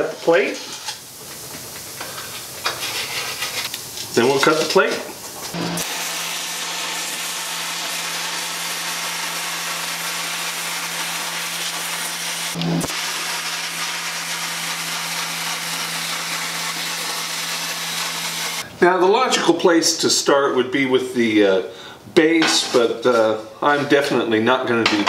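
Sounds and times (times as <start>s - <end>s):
plasma cutter hissing: 5.8s - 18.7s.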